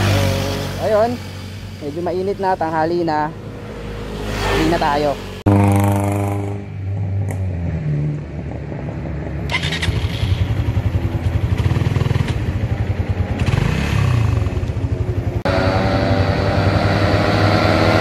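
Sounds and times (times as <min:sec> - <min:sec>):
motorcycle engine running: 0:05.5 - 0:07.1, 0:09.5 - 0:18.0.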